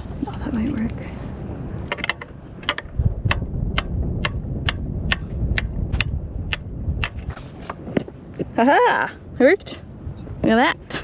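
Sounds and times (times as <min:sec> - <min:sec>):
hammer striking metal: 0:02.6 - 0:07.4.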